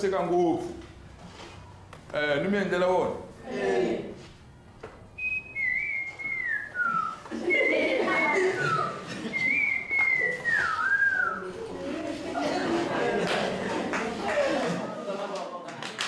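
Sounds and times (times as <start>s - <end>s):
man whistling bird call: 5.2s - 11.4s.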